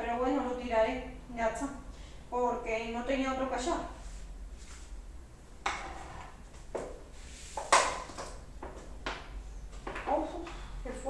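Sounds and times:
plastic containers knocking: 7.6 - 10.6.

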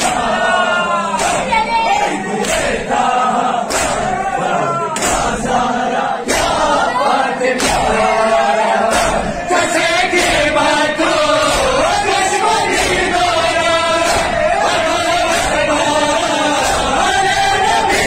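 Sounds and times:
chest slaps in unison: 0.0 - 0.5, 1.1 - 2.9, 3.6 - 4.2, 4.9 - 5.5, 6.2 - 6.8, 7.5 - 8.1, 8.8 - 18.0
men chanting: 0.0 - 18.0.

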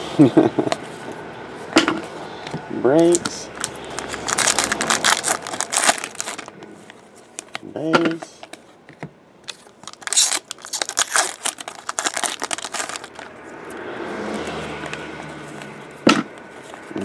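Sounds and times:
card pack wrapper crinkling: 3.1 - 7.6, 9.4 - 13.3.

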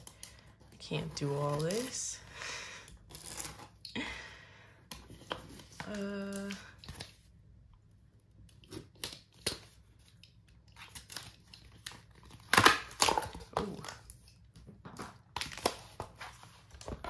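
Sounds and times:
tape being peeled: 2.9 - 4.0, 8.4 - 14.4.

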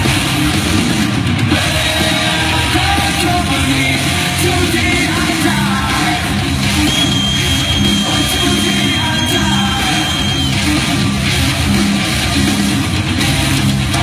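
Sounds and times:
guitar: 0.0 - 14.0
loud rock music: 0.0 - 14.0
person singing: 1.5 - 6.5, 8.0 - 10.4.

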